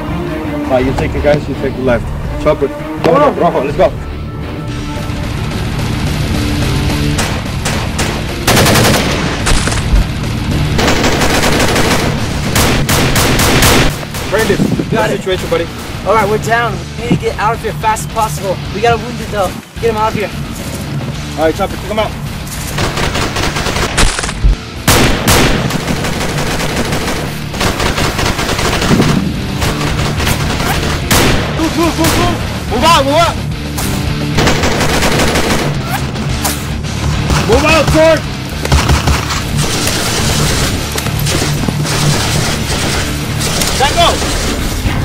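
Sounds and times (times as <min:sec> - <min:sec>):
background music: 0:00.0 - 0:45.0
gunshots: 0:07.0 - 0:10.1, 0:10.7 - 0:14.8, 0:22.7 - 0:32.5, 0:33.7 - 0:45.0
automatic gunfire bursts: 0:07.6 - 0:09.7, 0:10.8 - 0:14.0, 0:22.8 - 0:24.2, 0:24.9 - 0:31.5, 0:34.4 - 0:35.8.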